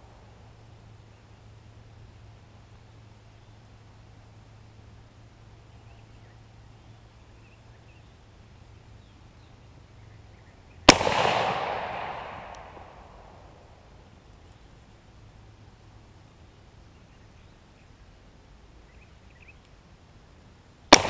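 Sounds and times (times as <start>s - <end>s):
rifle shot with long echo: 10.9s - 13.9s.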